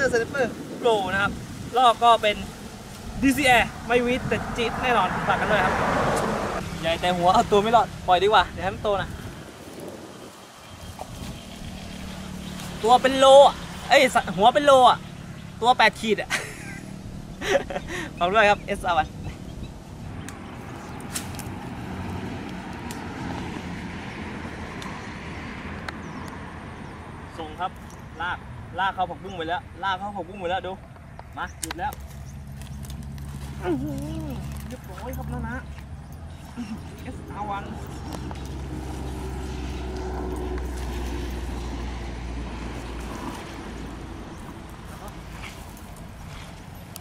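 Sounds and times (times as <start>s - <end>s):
vehicle engine humming: 0.0s - 28.7s, 30.7s - 47.0s
traffic passing: 0.0s - 47.0s
faint sharp clicks: 30.9s - 32.1s.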